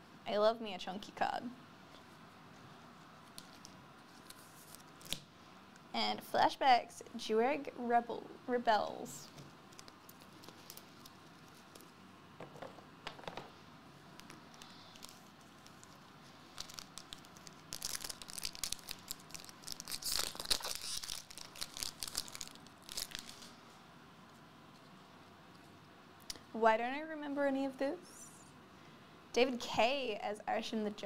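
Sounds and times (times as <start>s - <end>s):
card pack wrapper tearing and crinkling: 14.2s - 23.6s.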